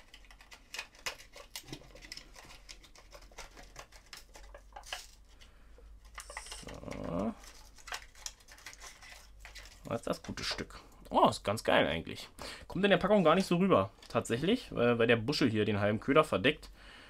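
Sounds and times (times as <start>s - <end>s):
blister pack clicks and crinkles: 0.0s - 5.4s, 6.0s - 10.5s
plastic scrape: 0.0s - 5.4s, 6.0s - 10.7s.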